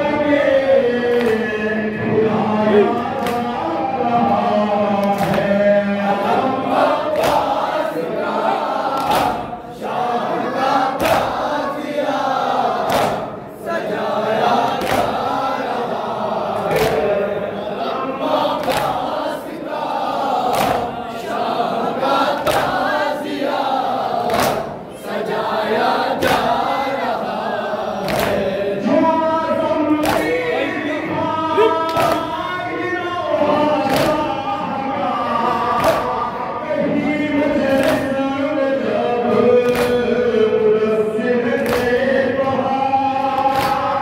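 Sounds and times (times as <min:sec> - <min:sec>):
man singing lament into microphone: 0:00.0 - 0:07.8, 0:28.3 - 0:44.0
crowd of men chanting: 0:00.0 - 0:44.0
chest beating slaps: 0:05.0 - 0:05.6, 0:07.1 - 0:07.7, 0:08.9 - 0:09.6, 0:11.0 - 0:11.5, 0:12.8 - 0:13.4, 0:14.7 - 0:15.4, 0:16.6 - 0:17.2, 0:18.6 - 0:19.2, 0:20.4 - 0:21.0, 0:22.4 - 0:22.8, 0:24.2 - 0:24.8, 0:26.2 - 0:26.7, 0:28.0 - 0:28.5, 0:30.0 - 0:30.4, 0:31.6 - 0:32.4, 0:33.8 - 0:34.3, 0:35.8 - 0:36.3, 0:39.6 - 0:40.0, 0:43.4 - 0:43.9.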